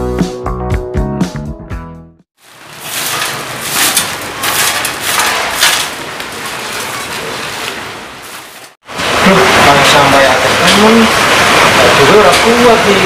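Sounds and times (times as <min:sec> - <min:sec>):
broom scraping: 0:02.4 - 0:08.8
plastic bags rustling and crinkling: 0:02.4 - 0:08.8.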